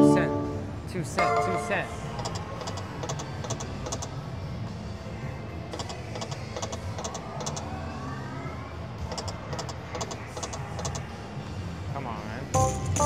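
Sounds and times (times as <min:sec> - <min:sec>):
rising tone: 0:00.0 - 0:01.7.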